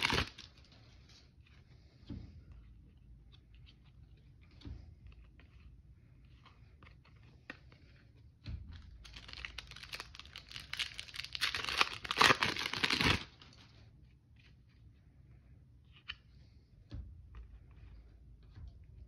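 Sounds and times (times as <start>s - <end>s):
foil wrapper tearing and crinkling: 0.0s - 0.5s, 9.1s - 13.5s.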